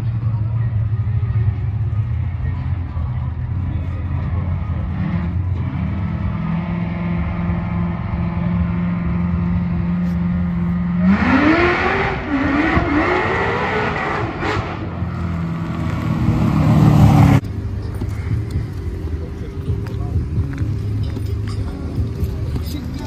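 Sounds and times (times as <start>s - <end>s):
drag car engine revving: 0.8s - 17.4s.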